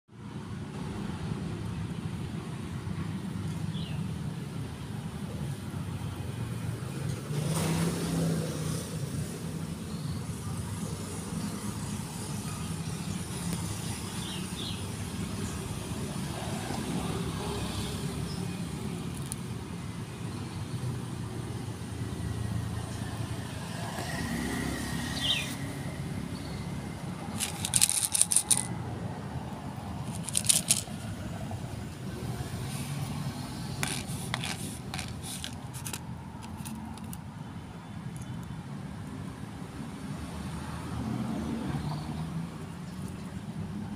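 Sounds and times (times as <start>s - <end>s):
street traffic rumble: 0.1s - 43.9s
sharp clicks and crackles: 27.4s - 28.7s, 30.1s - 31.1s.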